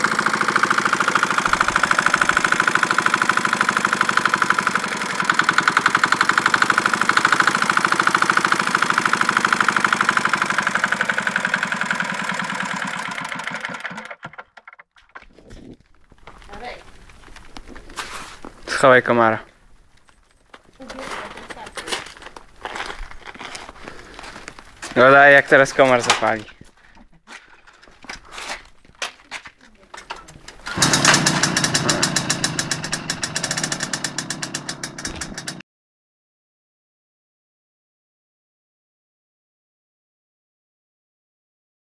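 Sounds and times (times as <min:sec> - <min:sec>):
diesel engine chugging: 0:00.0 - 0:14.4, 0:30.6 - 0:35.6.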